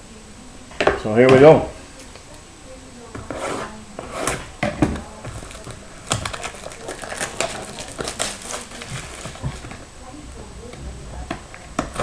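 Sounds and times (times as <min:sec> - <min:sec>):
plastic shrink wrap crinkling: 0:04.3 - 0:10.0.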